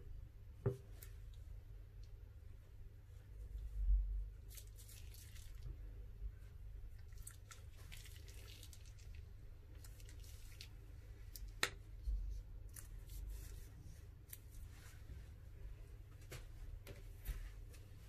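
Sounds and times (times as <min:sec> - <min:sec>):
piping bag crinkling: 0:07.0 - 0:11.6.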